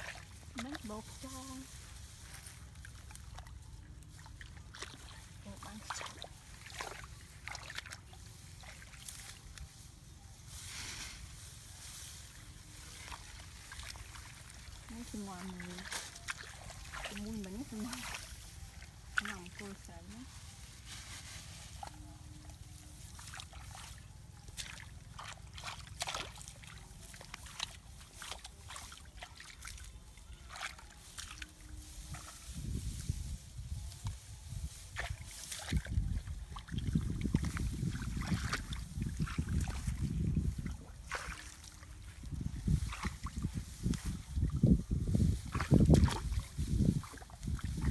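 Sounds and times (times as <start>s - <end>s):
sloshing in muddy water: 0.0s - 9.7s, 12.3s - 20.3s, 21.7s - 47.9s
hands rustling through plants: 0.0s - 47.9s.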